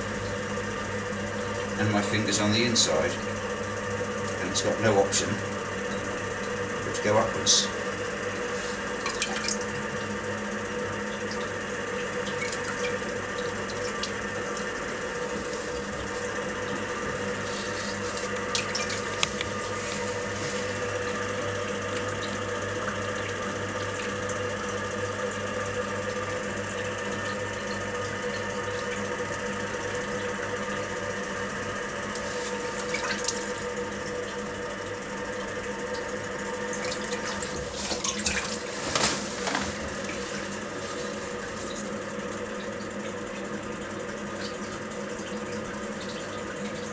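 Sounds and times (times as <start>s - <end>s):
potter's wheel humming: 0.0s - 46.9s
wet hands rubbing clay: 17.4s - 18.4s.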